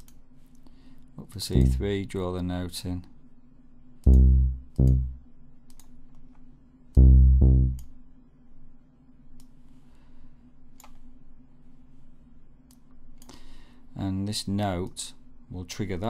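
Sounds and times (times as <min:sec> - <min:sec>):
deep synth bass notes: 0:01.6 - 0:02.0, 0:04.1 - 0:05.2, 0:07.0 - 0:07.8
faint mouse clicks: 0:05.7 - 0:06.5, 0:09.4 - 0:09.6, 0:12.6 - 0:13.4.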